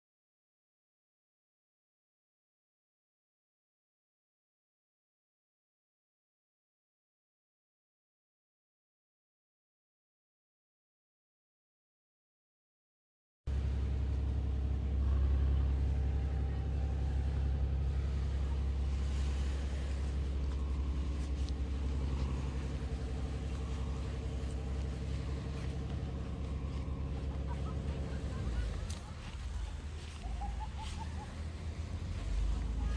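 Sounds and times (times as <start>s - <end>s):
vehicle engine rumbling: 13.5s - 32.9s.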